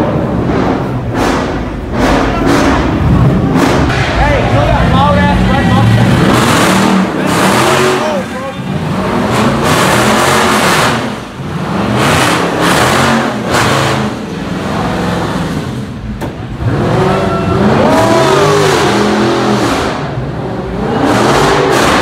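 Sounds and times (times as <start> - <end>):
car engine revving: 0.0 - 22.0
sharp crack: 3.5 - 4.6.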